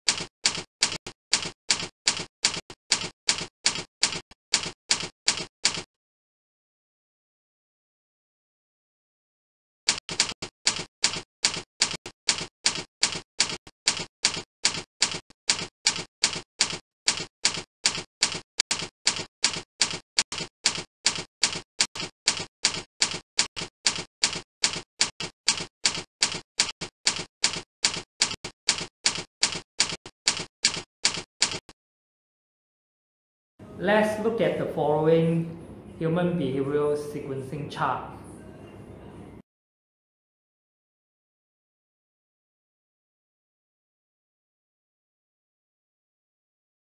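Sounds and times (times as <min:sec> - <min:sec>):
typing clicks: 0:00.1 - 0:05.9, 0:09.9 - 0:31.7.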